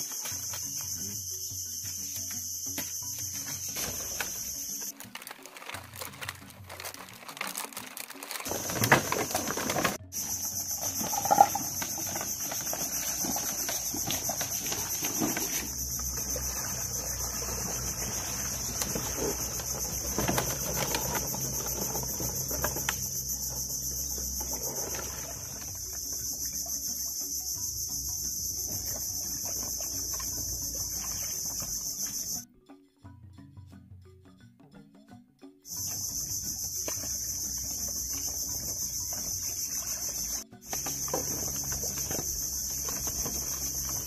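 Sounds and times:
insects chorus: 0.0 - 4.9, 8.5 - 32.4, 35.7 - 44.0.

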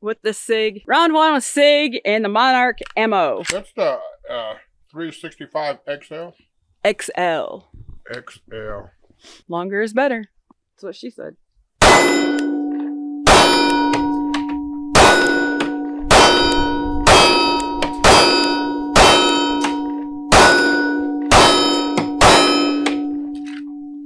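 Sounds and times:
bullets hitting steel plate: 11.8 - 23.7.

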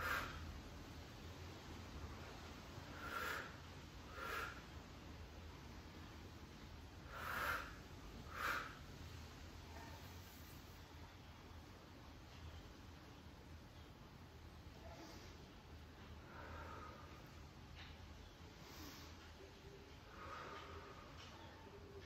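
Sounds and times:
heavy nasal breathing: 0.0 - 0.5, 2.8 - 4.8, 7.0 - 9.0, 16.1 - 17.5, 18.5 - 21.5.

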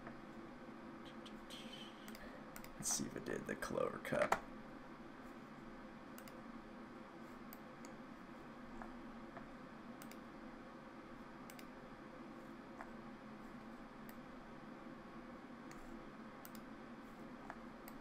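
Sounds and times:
faint room hum: 0.0 - 18.0
computer mouse clicking: 1.1 - 2.8, 6.2 - 6.4, 7.5 - 8.0, 10.0 - 10.3, 11.4 - 11.7, 15.7 - 16.7, 17.4 - 18.0.

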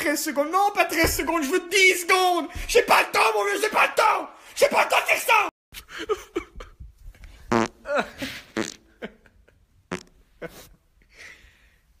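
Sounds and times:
man making fart-like noises: 7.5 - 9.0, 9.9 - 10.7.

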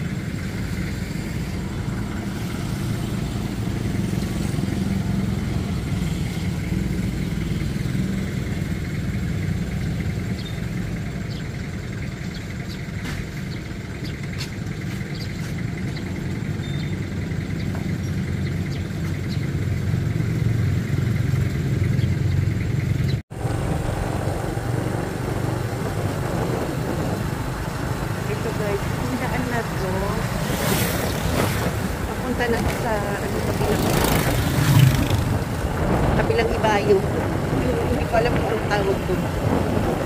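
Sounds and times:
motorcycle engine rumble: 0.0 - 40.0
wind on microphone: 23.4 - 40.0.

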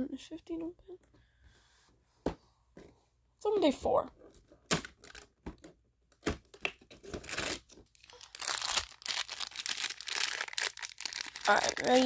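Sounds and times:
plastic wrapper crinkling: 4.8 - 5.3, 7.0 - 12.0.

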